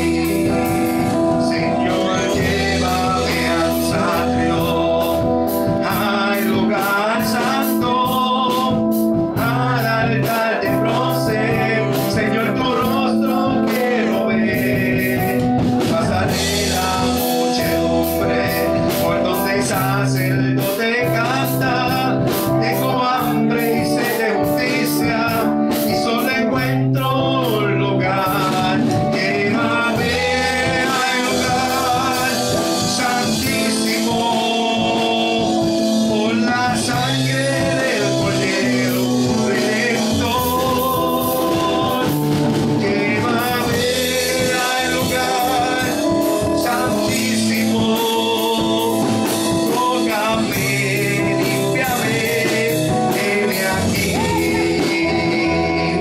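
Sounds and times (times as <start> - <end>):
bass notes: 0.0 - 56.0
drums with cymbal strokes: 0.0 - 56.0
man singing into microphone: 0.0 - 56.0.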